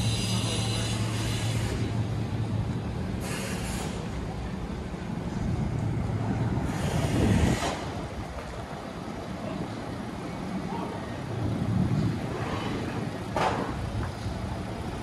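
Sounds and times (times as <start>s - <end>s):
hiss: 0.0s - 2.0s, 3.2s - 4.2s, 6.7s - 7.9s
vehicle humming: 0.0s - 15.0s.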